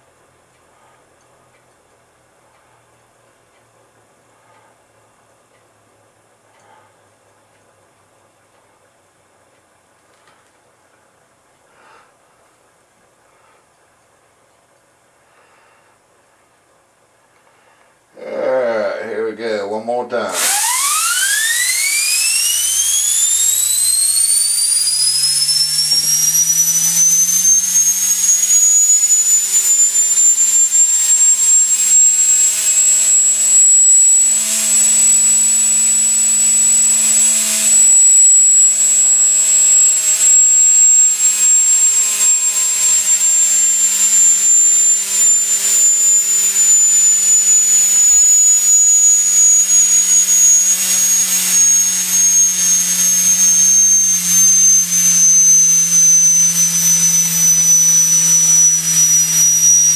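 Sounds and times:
steam turbine whine: 0:20.1 - 0:59.9
steam hissing: 0:20.4 - 0:59.9.

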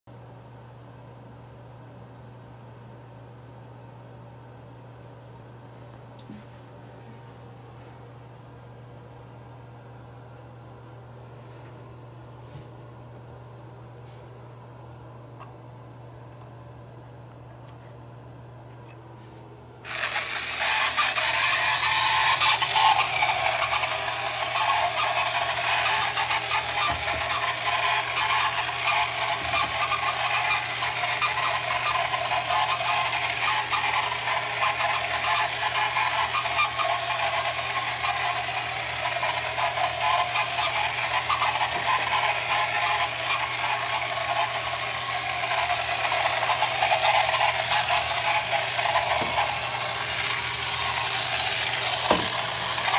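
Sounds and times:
toy electric motor buzzing: 0:19.8 - 0:52.9.

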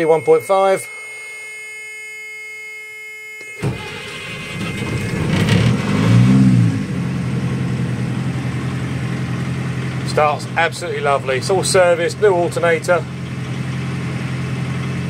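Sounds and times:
warning buzzer tone: 0:00.0 - 0:03.8
diesel engine starting and idling: 0:03.6 - 0:15.0.

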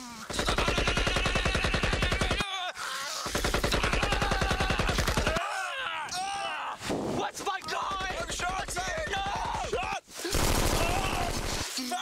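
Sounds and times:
automatic machine-gun fire: 0:10.3 - 0:11.6.

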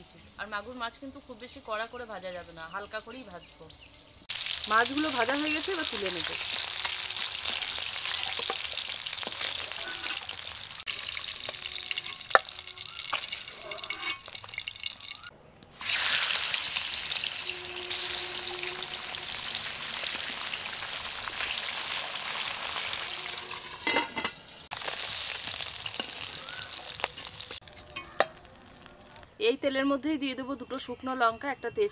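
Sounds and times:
hot oil sizzling: 0:04.2 - 0:29.3.

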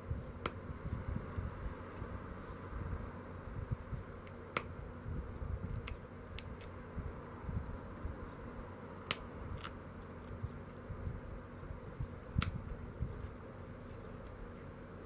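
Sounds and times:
stone flake clicks: 0:05.7 - 0:06.8, 0:12.4 - 0:12.8.

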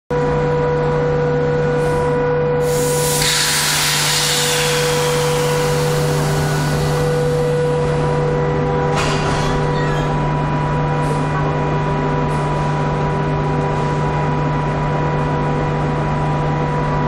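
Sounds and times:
electric locomotive humming: 0:02.4 - 0:17.0
air release hiss: 0:02.6 - 0:07.7.

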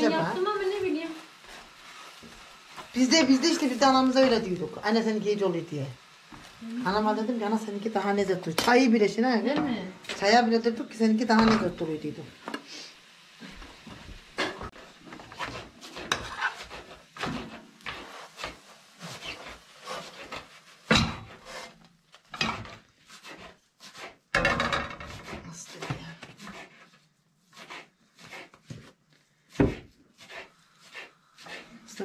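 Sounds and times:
frying pan scraping and knocking: 0:00.0 - 0:04.7, 0:11.2 - 0:12.0, 0:13.8 - 0:27.0, 0:29.5 - 0:31.6.

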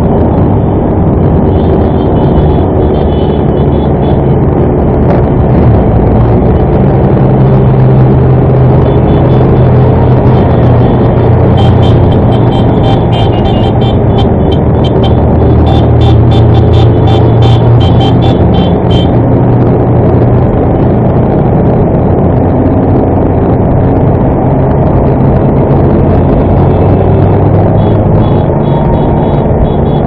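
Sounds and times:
other motorcycles riding: 0:00.0 - 0:30.0
motorcycle engine running: 0:05.1 - 0:20.6.

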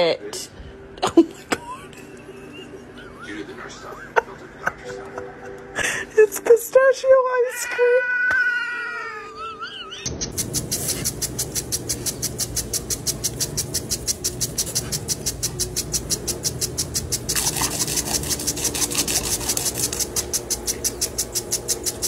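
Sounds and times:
impact sprinkler ticking: 0:10.3 - 0:22.0
water spray hissing: 0:10.4 - 0:22.0.

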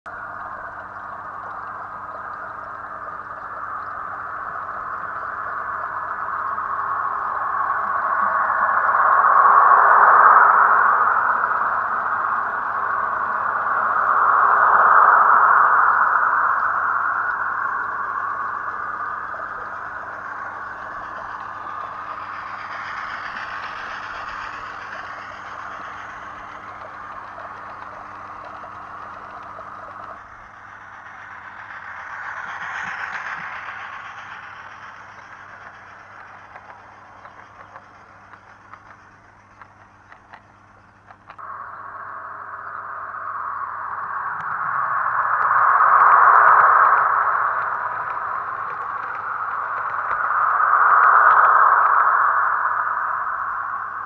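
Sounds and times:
model train rolling on track: 0:17.9 - 0:41.4.

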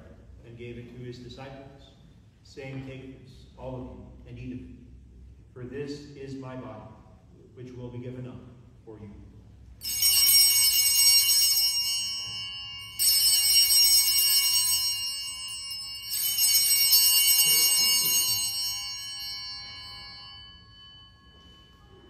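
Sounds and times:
altar bells ringing: 0:09.7 - 0:22.0.

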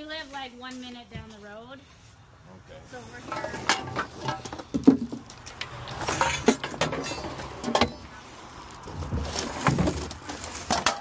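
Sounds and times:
cans and debris clattering: 0:03.2 - 0:08.1, 0:09.0 - 0:11.0
plastic bags rustling: 0:08.6 - 0:11.0.

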